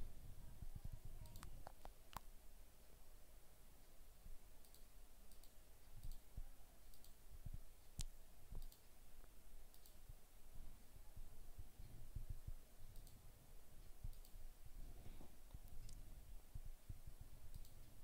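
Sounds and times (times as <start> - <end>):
low room hiss: 0.0 - 18.0
computer mouse clicks: 1.2 - 2.3, 4.6 - 7.2, 7.8 - 10.0, 12.9 - 13.2, 13.8 - 14.4, 17.5 - 18.0.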